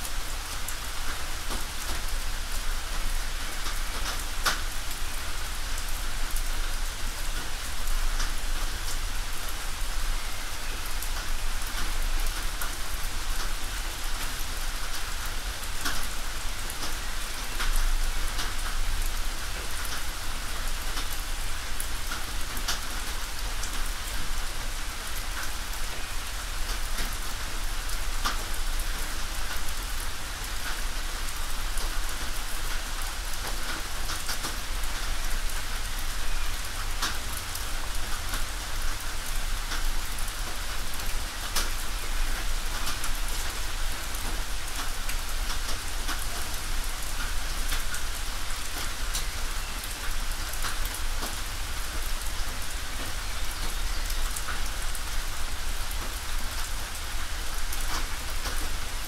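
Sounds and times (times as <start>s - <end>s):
rain on a tin roof: 0.0s - 59.0s.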